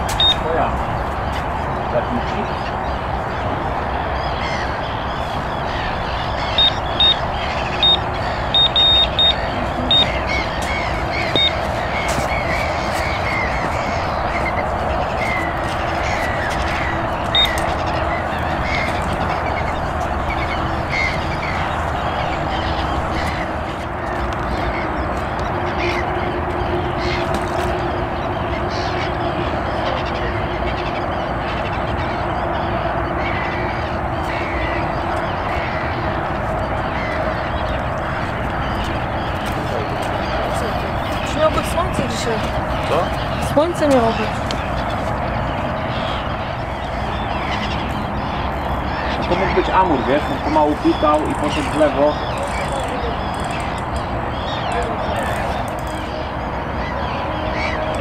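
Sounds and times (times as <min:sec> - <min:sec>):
faint bird calls: 0:00.0 - 0:58.0
outdoor noise: 0:00.0 - 0:58.0
short high beeps: 0:08.6 - 0:10.1.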